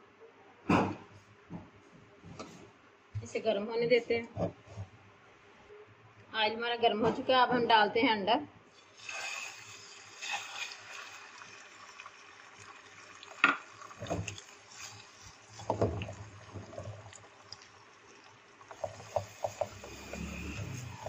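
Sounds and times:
egg sizzling in oil: 8.7 - 21.0.

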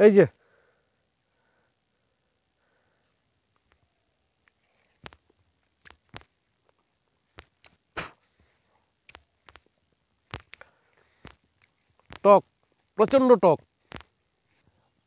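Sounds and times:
crisp fruit crunching: 4.4 - 7.9.

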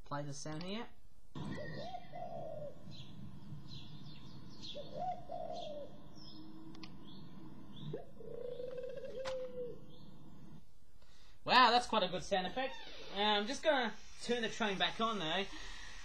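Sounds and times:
dove cooing: 1.4 - 10.6
small birds chirping: 1.4 - 11.3.

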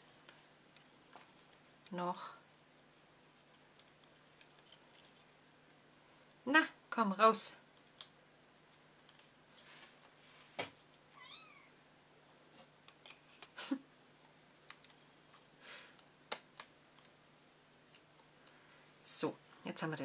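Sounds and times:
kitten mewing: 11.2 - 11.7.

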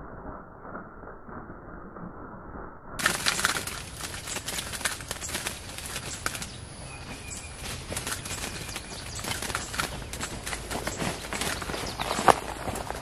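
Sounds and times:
rustling of leaves and brush: 3.0 - 13.0.

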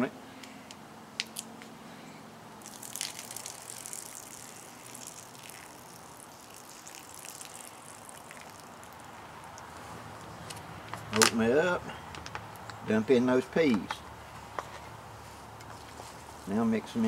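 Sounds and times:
liquid trickling and splashing: 2.6 - 10.4.

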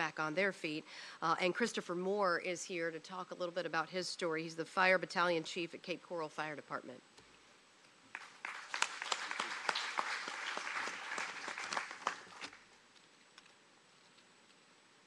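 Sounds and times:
audience applauding: 8.1 - 12.6.

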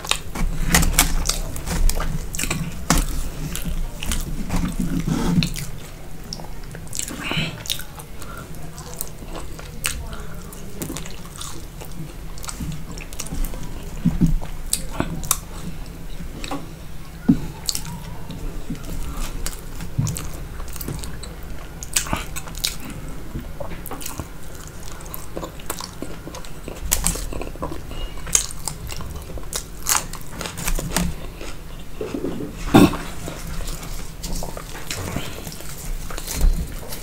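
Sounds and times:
food crunch: 0.0 - 16.7, 17.3 - 37.0
low steady hum: 0.0 - 37.0
person chewing food: 0.0 - 37.0.

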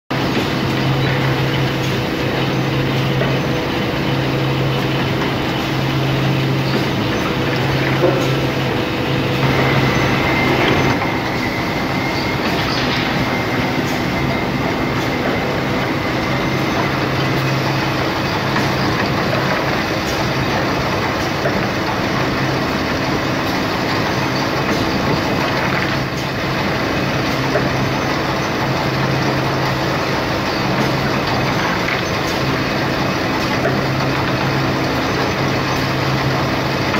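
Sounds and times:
press machinery noise: 0.1 - 36.9
high whine: 0.2 - 19.2.

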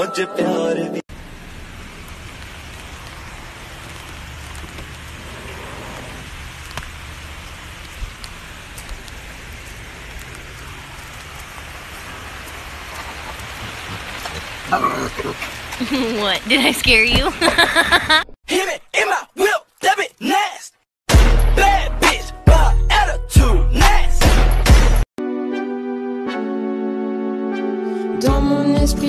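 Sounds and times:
steady rain falling: 1.1 - 18.2.

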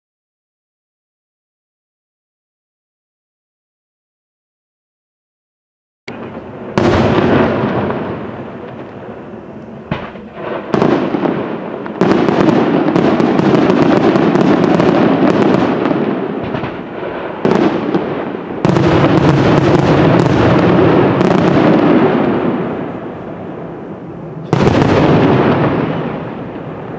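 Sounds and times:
firework shells bursting: 6.1 - 23.0
firework crackling: 6.1 - 26.9.

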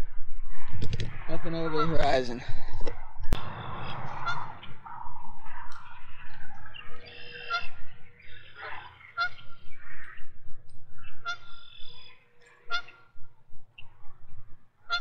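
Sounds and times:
geese honking: 1.6 - 2.4, 3.4 - 14.1, 14.8 - 15.0.

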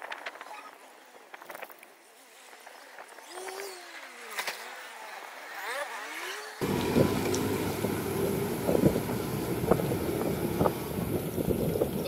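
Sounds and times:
road rumble: 6.6 - 12.0
wind buffeting microphone: 6.6 - 12.0.

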